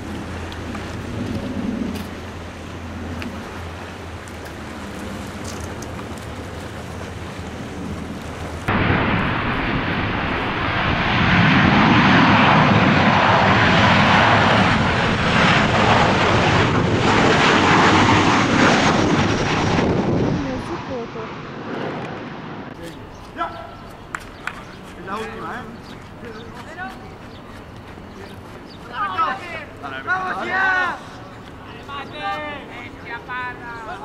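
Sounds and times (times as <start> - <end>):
sea waves at shore: 0.0 - 10.4
jet engine roar: 0.0 - 34.0
wind: 0.0 - 34.0.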